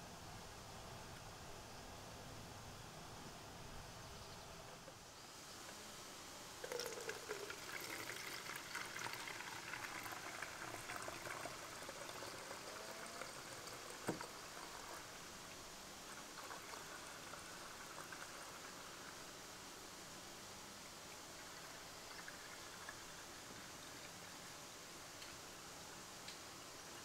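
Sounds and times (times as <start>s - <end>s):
liquid trickling into bottle: 6.6s - 15.1s.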